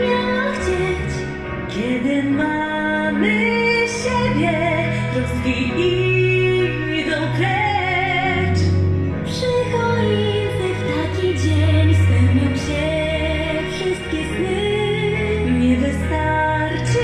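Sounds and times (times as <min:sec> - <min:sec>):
woman singing: 0:00.0 - 0:17.0.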